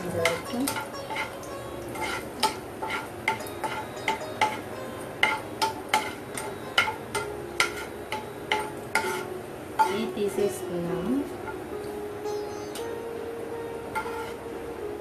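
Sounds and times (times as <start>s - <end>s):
nuts frying in oil: 0.0s - 11.8s
metal spoon clinking on frying pan: 0.1s - 10.1s.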